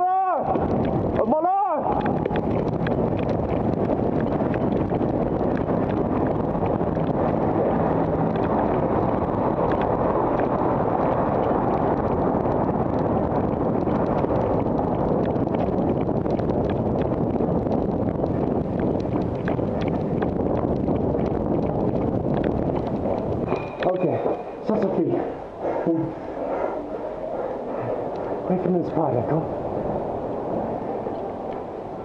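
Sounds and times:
wind buffeting microphone: 0:00.0 - 0:32.0
bicycle clicks and rattles: 0:00.5 - 0:01.3, 0:01.9 - 0:25.2.

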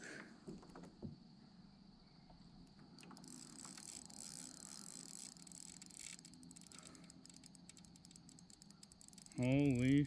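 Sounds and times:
fishing reel ticking: 0:03.0 - 0:10.0.

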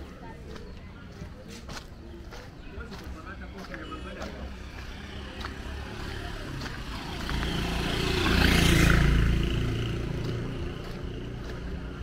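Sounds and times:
motorcycle passing by: 0:04.4 - 0:12.0.

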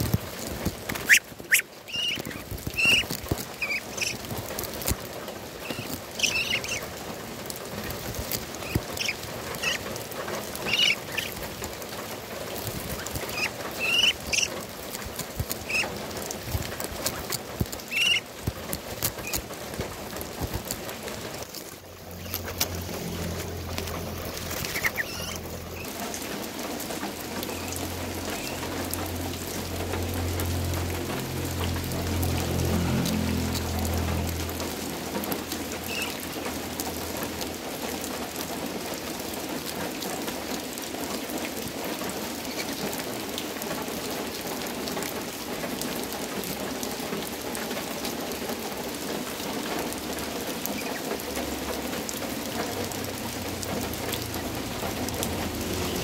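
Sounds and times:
rain pattering: 0:00.0 - 0:56.0
ducklings peeping: 0:00.6 - 0:05.0, 0:05.6 - 0:19.6, 0:22.1 - 0:29.9, 0:35.3 - 0:36.6, 0:50.7 - 0:51.1.

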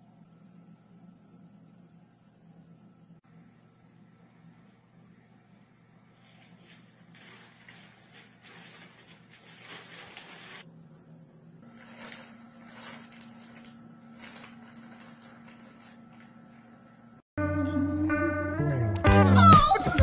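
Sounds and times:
plastic bag rustling and crinkling: 0:06.2 - 0:10.7, 0:11.6 - 0:17.2.

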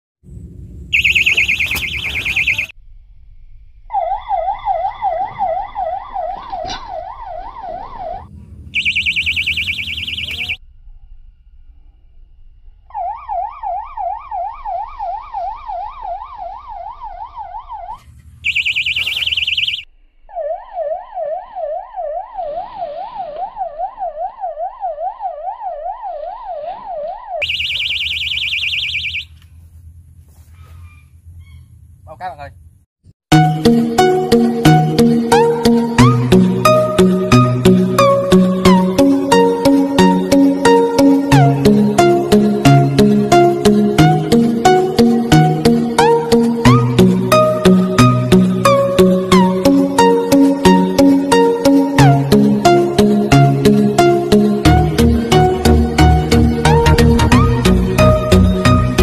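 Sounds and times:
higher faster warbling alarm: 0:00.9 - 0:02.8, 0:03.9 - 0:10.6, 0:12.9 - 0:29.4
warbling fishing bite alarm: 0:00.9 - 0:02.8, 0:03.9 - 0:10.6, 0:12.9 - 0:29.4.

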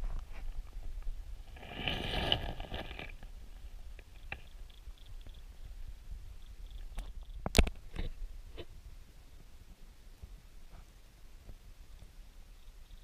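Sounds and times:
underwater current rumble: 0:01.4 - 0:03.3.

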